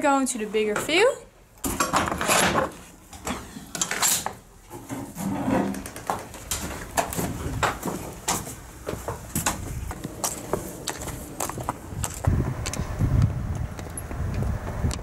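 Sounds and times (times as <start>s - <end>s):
metal bolt sliding with scrape: 2.1s - 5.8s.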